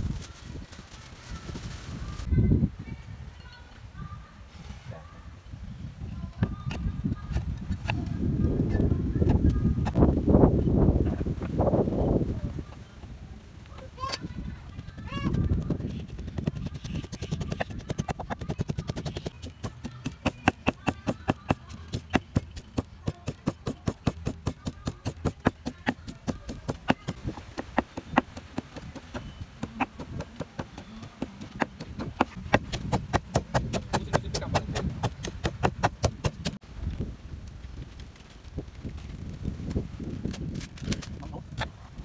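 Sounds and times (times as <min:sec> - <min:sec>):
wooden pestle pounding in mortar: 0:15.0 - 0:36.6.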